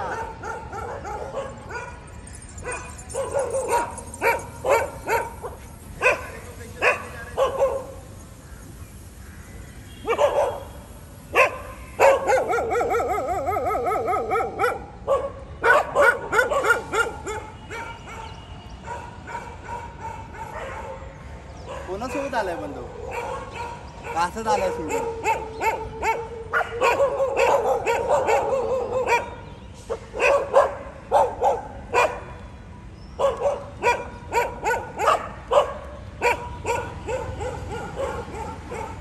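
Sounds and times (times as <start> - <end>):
dogs barking: 0.0 - 8.1, 10.0 - 10.7, 11.3 - 32.4, 33.2 - 39.0
wavering dog cry: 11.4 - 17.5.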